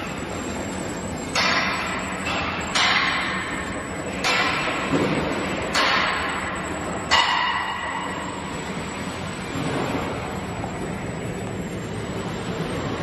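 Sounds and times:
machine running steadily: 0.0s - 13.0s.

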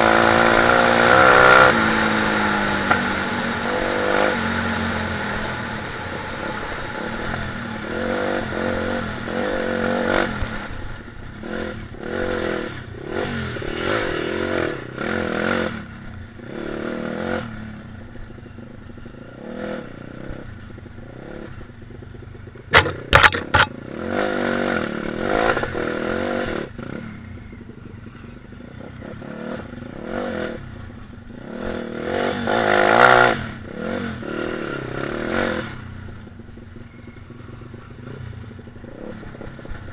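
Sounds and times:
motorbike engine revving: 0.0s - 39.9s
sharp knocks: 22.7s - 23.7s.

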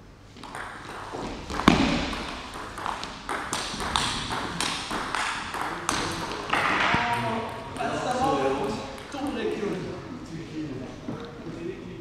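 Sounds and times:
table tennis ball hits: 0.4s - 9.4s.

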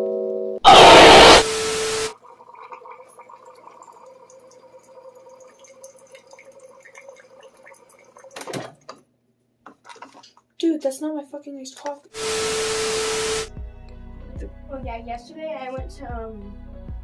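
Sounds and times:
loud hiss: 0.7s - 2.1s, 12.2s - 13.5s
faint gurgling and dripping: 2.1s - 9.0s
coffee maker pump hum: 12.2s - 13.5s.

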